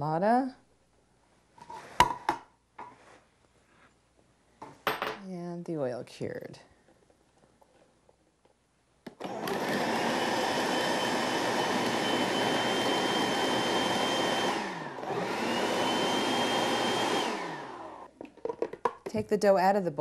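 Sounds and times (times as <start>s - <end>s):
food processor motor whirring: 9.1s - 18.1s.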